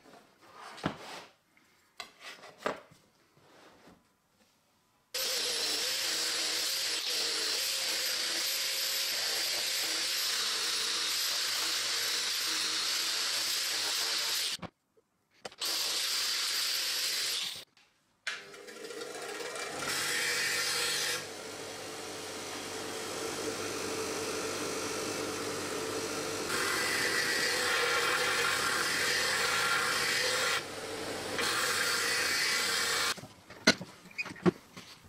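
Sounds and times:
angle grinder whining on steel: 0:18.3 - 0:33.2
bench grinder motor humming: 0:18.4 - 0:33.2.

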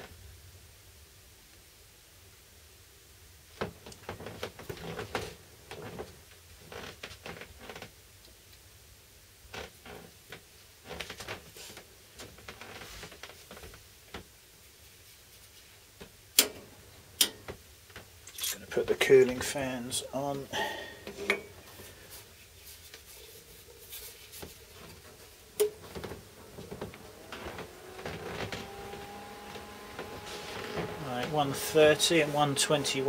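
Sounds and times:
metal tools clicking and scraping: 0:18.3 - 0:18.6.

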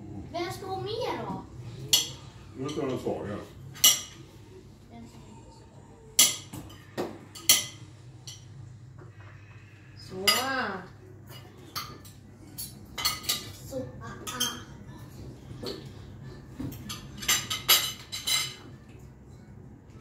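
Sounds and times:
cutlery clinking on plates: 0:01.9 - 0:04.3, 0:06.2 - 0:08.7, 0:10.2 - 0:13.6, 0:15.5 - 0:19.1.

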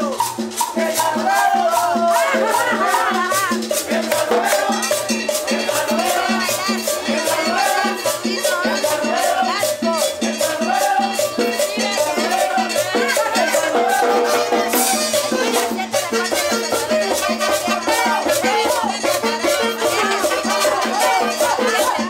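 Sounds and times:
high percussion rhythm: 0:00.0 - 0:22.0
live band playing: 0:00.0 - 0:22.0.

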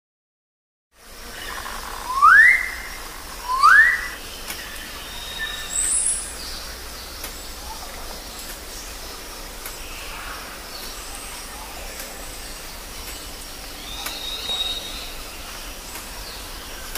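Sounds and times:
forest background: 0:00.9 - 0:16.9
bird rising calls: 0:01.3 - 0:06.0
faint high bird chirps: 0:01.3 - 0:06.4, 0:13.1 - 0:15.4.

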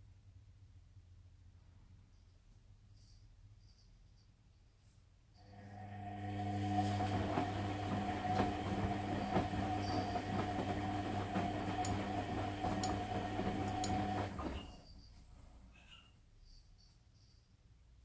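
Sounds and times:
washing machine motor humming: 0:05.4 - 0:14.9.

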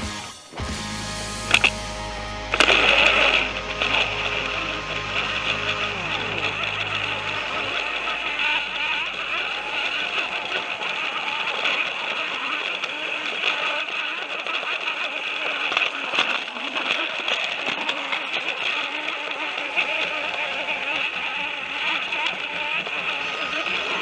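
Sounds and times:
toy train motor whirring: 0:01.3 - 0:24.0
wheels rattling on plastic track: 0:07.8 - 0:24.0.

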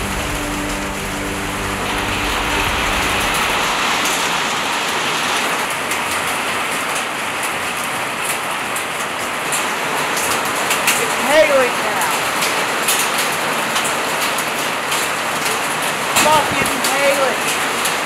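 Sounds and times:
low steady hum: 0:00.0 - 0:04.4
heavy rain pouring: 0:00.0 - 0:18.0.

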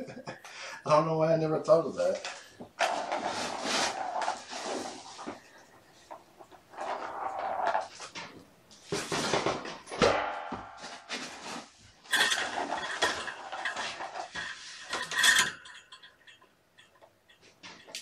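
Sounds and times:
plastic balls rattling in toy track: 0:12.1 - 0:17.0.

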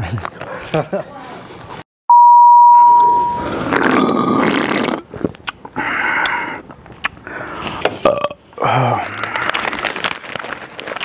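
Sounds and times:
steady test tone beep: 0:02.1 - 0:03.5.

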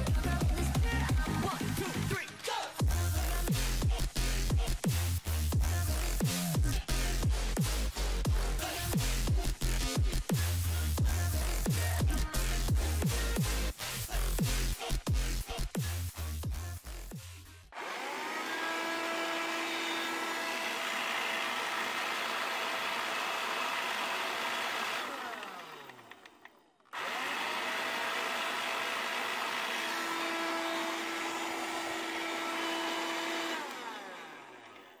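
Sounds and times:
handheld vacuum cleaner running: 0:17.7 - 0:35.0.

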